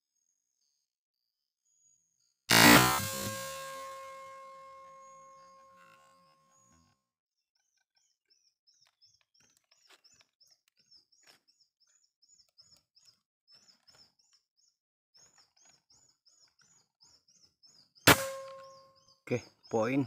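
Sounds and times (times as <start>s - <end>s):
faint high chirping: 7.8s - 20.0s.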